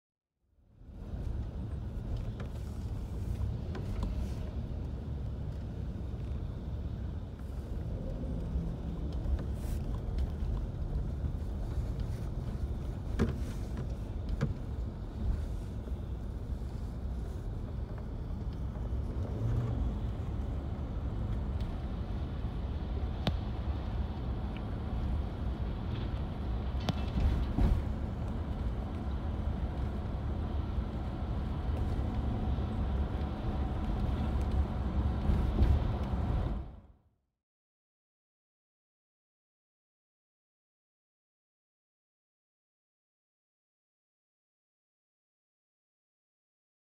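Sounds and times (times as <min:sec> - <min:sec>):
car road and engine rumble: 0:00.5 - 0:37.1.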